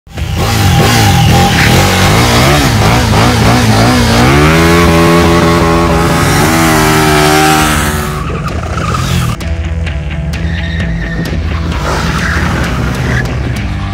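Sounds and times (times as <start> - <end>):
motorcycle engine revving: 0.1 - 9.4.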